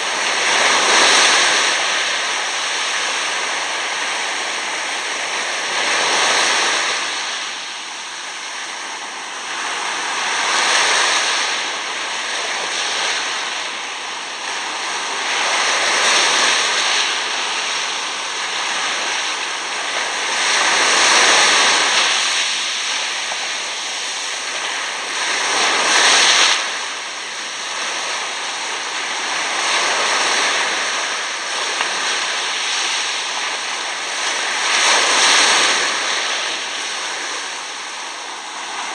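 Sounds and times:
surf washing over sand: 0.0 - 38.9.

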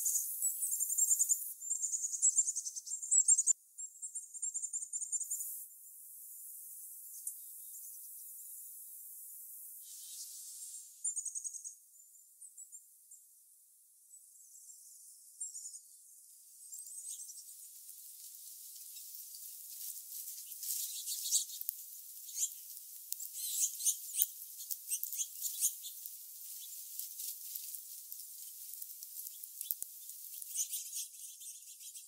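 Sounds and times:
songbirds chirping and trilling: 0.0 - 5.7, 9.8 - 13.3, 14.0 - 32.0
birds ticking chips: 16.7 - 32.0.

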